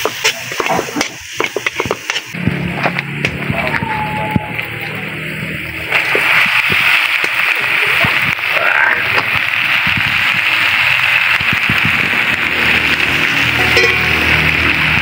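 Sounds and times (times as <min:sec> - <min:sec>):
shrimp sizzling in a wok: 0:00.0 - 0:15.0
low steady drone: 0:12.0 - 0:15.0.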